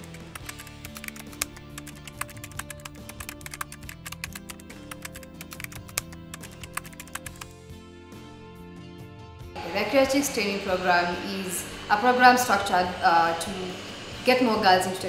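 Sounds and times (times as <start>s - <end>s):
keyboard typing clicks: 0.0s - 7.5s
background music with held notes: 0.0s - 15.0s.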